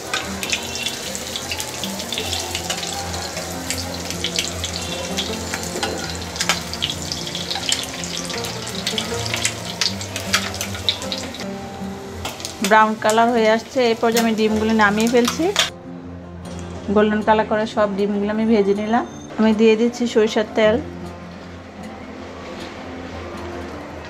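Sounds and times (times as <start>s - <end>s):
food sizzling in hot oil: 0.0s - 15.7s
quiet background music: 0.0s - 24.0s.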